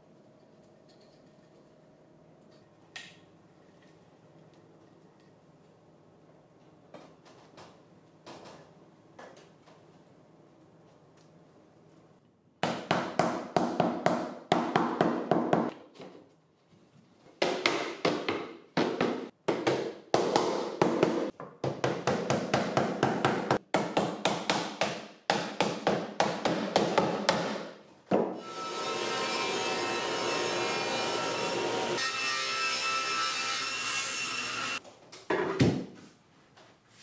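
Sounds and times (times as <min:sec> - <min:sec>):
table saw whirring: 0:28.4 - 0:34.8.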